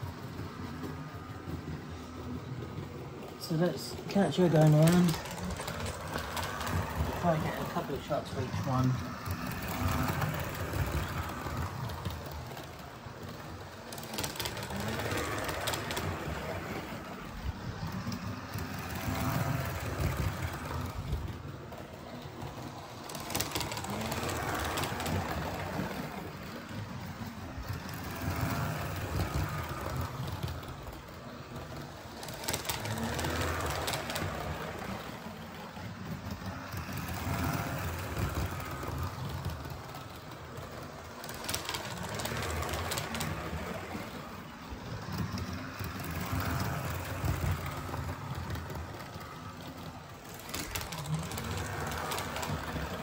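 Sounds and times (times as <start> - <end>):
model train motor hum: 0.0 - 53.0
wheels clicking over rail joints: 0.0 - 53.0.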